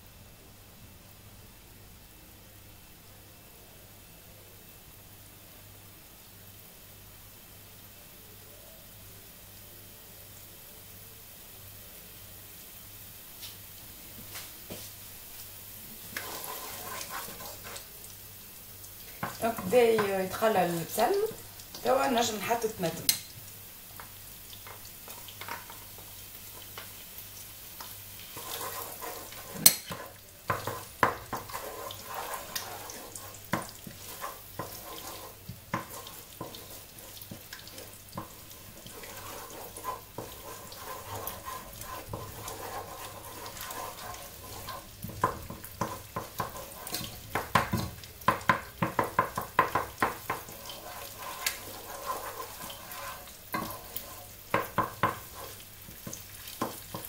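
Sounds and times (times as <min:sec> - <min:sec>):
food sizzling in oil: 0:04.0 - 0:57.0
wooden spoon stirring pot: 0:16.1 - 0:18.0, 0:19.1 - 0:23.2, 0:27.8 - 0:57.0.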